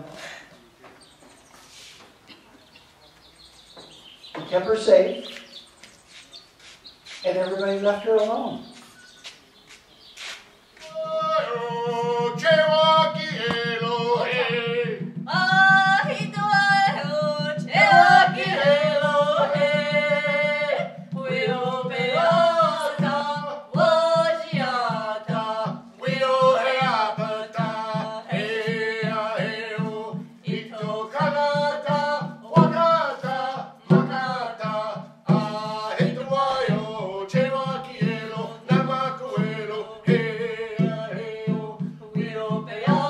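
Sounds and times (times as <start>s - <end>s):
frame drum beats: 10.8s - 43.0s
woman singing: 13.2s - 34.7s, 35.3s - 43.0s.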